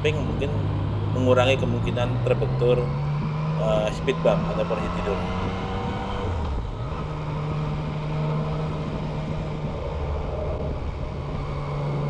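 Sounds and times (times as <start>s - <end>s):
motorcycle engine cruising: 0.0s - 12.0s
wind noise: 8.7s - 12.0s.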